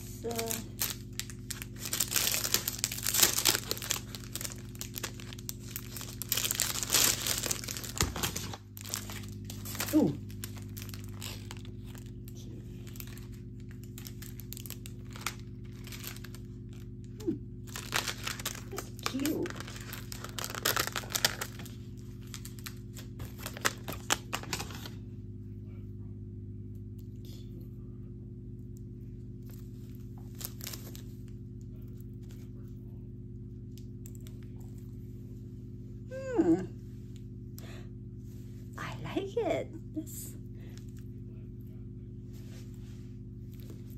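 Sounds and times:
low electrical hum: 0.0s - 43.9s
packaging rustling and crinkling: 0.2s - 12.2s, 12.8s - 16.9s, 17.7s - 25.0s, 29.5s - 31.2s
plastic packaging crackling: 0.2s - 25.0s, 29.5s - 31.4s.

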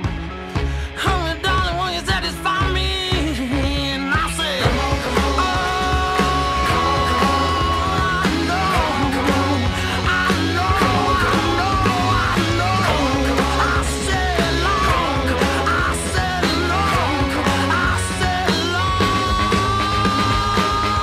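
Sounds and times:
rock music playing: 0.0s - 21.0s.

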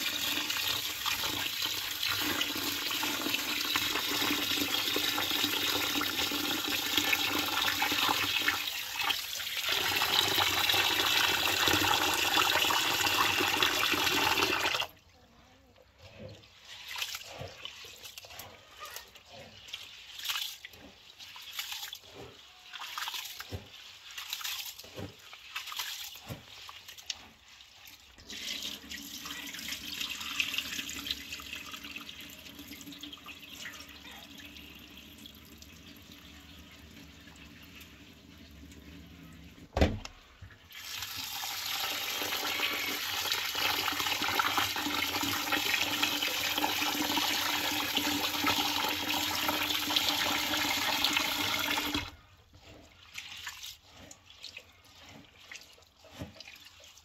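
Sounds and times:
water swishing and splashing: 16.0s - 31.9s, 37.4s - 57.0s
tap running steady stream: 24.8s - 25.3s, 39.8s - 52.2s, 55.4s - 57.0s.

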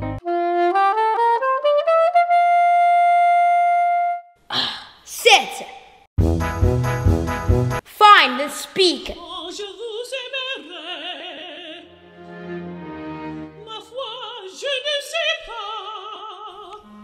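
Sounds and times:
operatic voice singing: 8.0s - 12.2s, 13.6s - 16.8s.

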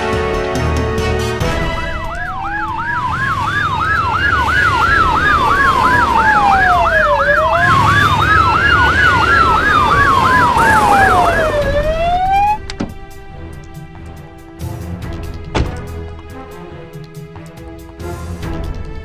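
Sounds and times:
police siren yelp: 1.4s - 12.9s
police siren slow wail: 1.4s - 13.7s.

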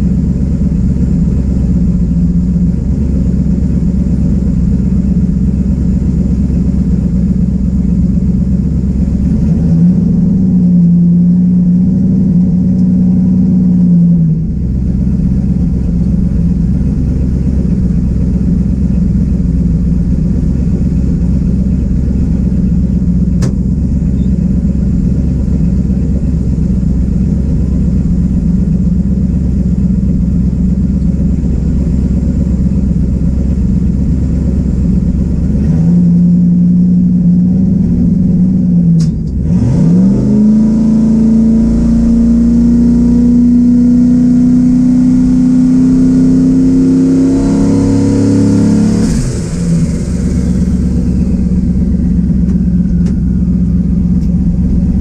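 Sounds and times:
truck engine idling: 0.0s - 39.7s, 43.3s - 55.0s
sharp click: 23.4s - 23.6s, 39.0s - 39.4s.

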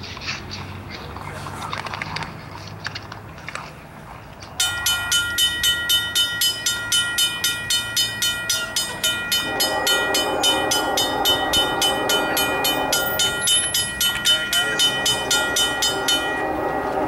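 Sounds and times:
crossing bell ringing: 4.6s - 17.0s
locomotive horn: 9.0s - 17.0s.

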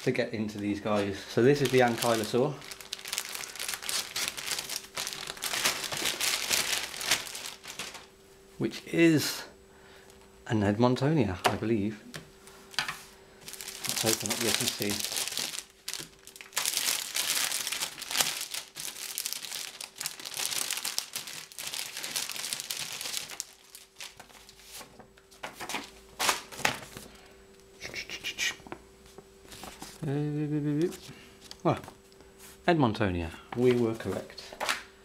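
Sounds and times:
plastic sleeve crinkling: 0.0s - 8.1s, 13.4s - 25.0s
paper rustling: 0.6s - 8.1s, 12.8s - 27.1s, 29.4s - 30.0s.

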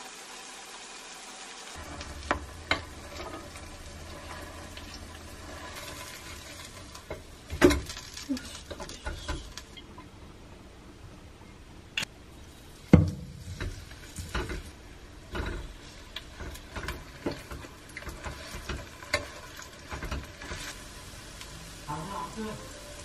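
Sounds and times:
batter sizzling in hot oil: 0.0s - 9.9s, 12.4s - 23.0s
metal spatula scraping a pan: 1.8s - 9.8s, 13.3s - 20.8s.

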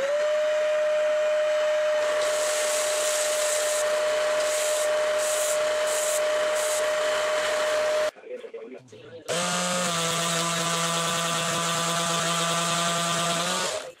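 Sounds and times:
belt sander whine: 0.0s - 8.1s.

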